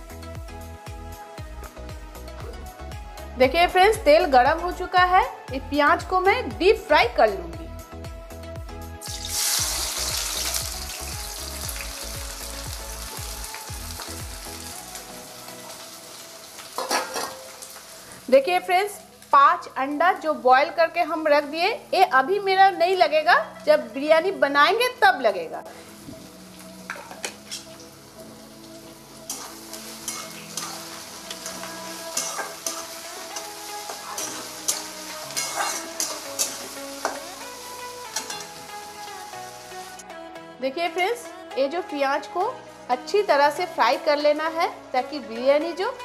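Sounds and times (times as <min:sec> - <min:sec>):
onions sizzling in hot oil: 0:09.0 - 0:24.8, 0:25.7 - 0:40.0
metal spatula scraping a pan: 0:16.8 - 0:17.5, 0:27.0 - 0:27.8, 0:29.3 - 0:37.2.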